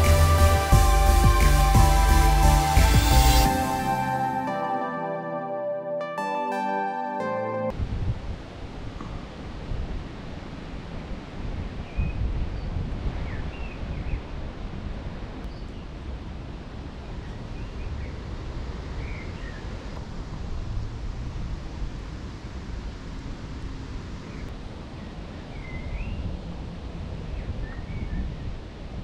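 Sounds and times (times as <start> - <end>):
wind buffeting microphone: 7.8 - 29.0.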